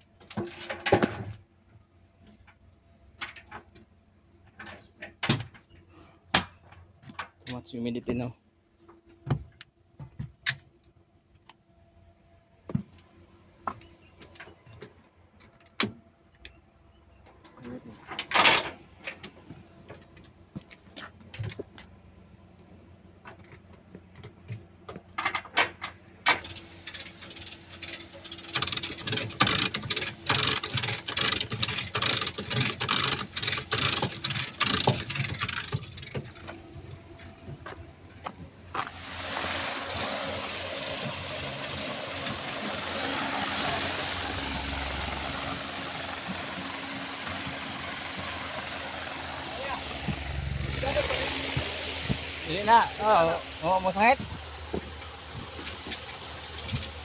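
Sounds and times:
chain hoist metal clicks and knocks: 25.2 - 38.2, 39.0 - 50.1, 54.9 - 57.0
chain rattling: 26.4 - 37.6.

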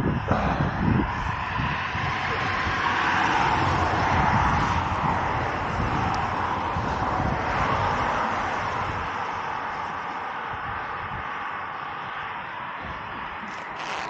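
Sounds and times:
low thumps: 0.0 - 2.9
wind on microphone: 0.0 - 14.0.

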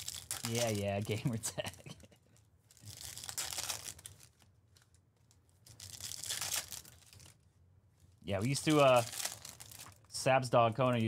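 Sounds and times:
foil wrapper tearing and crinkling: 0.0 - 1.8, 2.7 - 5.0, 5.6 - 7.4, 8.4 - 10.1.

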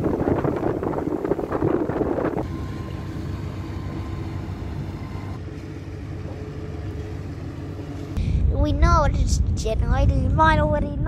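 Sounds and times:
rush of wind and water: 0.0 - 2.5
boat engine humming: 0.0 - 8.2
faint steady whine: 0.0 - 9.7.

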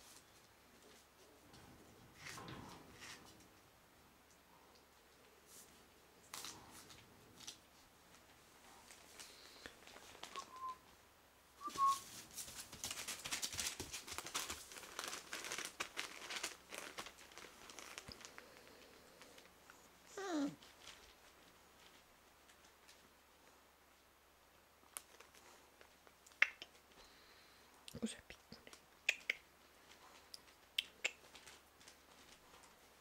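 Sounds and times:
newspaper crinkling and rustling: 11.8 - 19.5
puppy whine: 19.8 - 20.8
puppy squeaks: 20.1 - 20.6.

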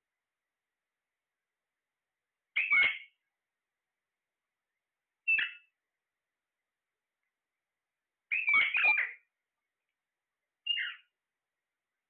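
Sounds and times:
parakeets calling: 2.6 - 3.2, 5.3 - 5.7, 8.3 - 9.3, 10.6 - 11.1.

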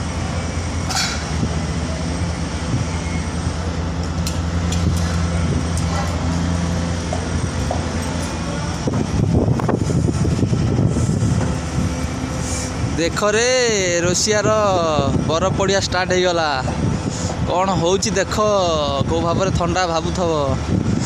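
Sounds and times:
construction machinery drone: 0.0 - 21.0.

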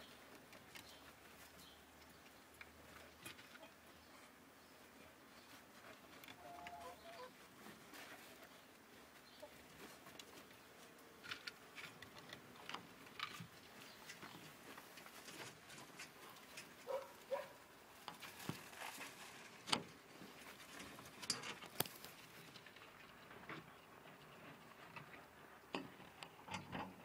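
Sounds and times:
rustling wood shavings: 0.0 - 23.0
ferrets chewing and tearing: 9.7 - 23.3.

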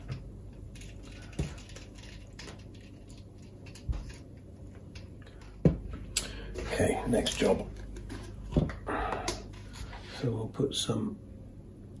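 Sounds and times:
wire coils ticking and rustling: 0.0 - 8.4.

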